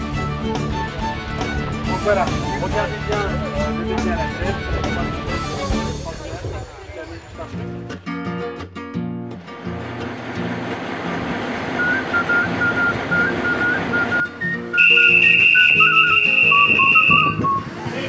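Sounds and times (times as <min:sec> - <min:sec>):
shrill whistle blast: 0:11.8 - 0:17.6.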